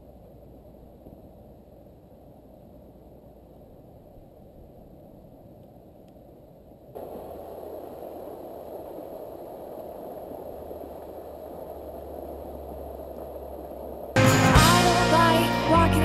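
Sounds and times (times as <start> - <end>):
outdoor air noise: 0.0 - 14.2
music: 14.2 - 16.0.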